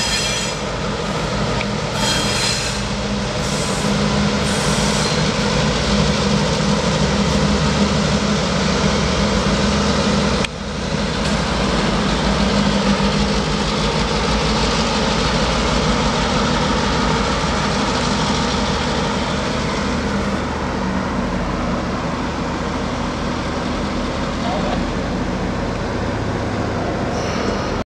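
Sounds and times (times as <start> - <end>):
diesel locomotive engines rumbling: 0.0 - 27.8
train wheels rolling on rails: 0.0 - 27.8.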